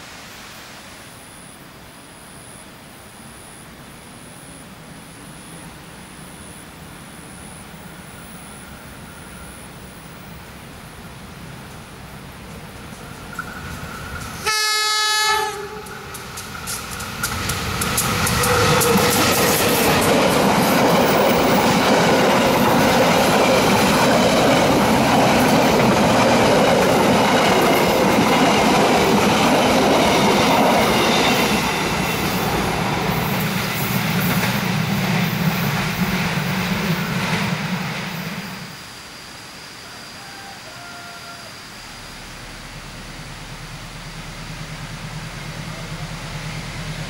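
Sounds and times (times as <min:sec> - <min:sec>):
locomotive horn blast: 0:14.4 - 0:16.1
train wheels clattering over rail joints: 0:15.9 - 0:38.2.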